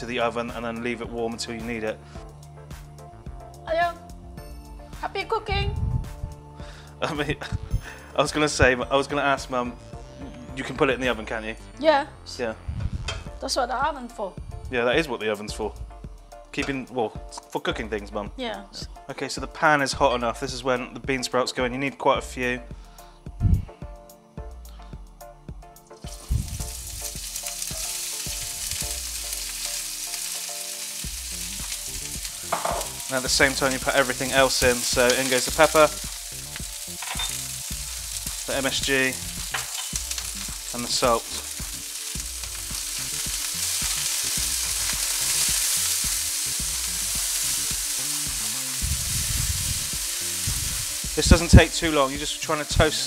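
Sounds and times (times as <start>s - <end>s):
bean sprouts sizzling in oil: 25.9s - 53.0s.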